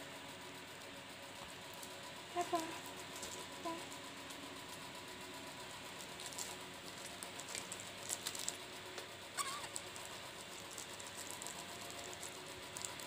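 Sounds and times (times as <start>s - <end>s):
plastic bag crinkling: 6.2s - 13.0s.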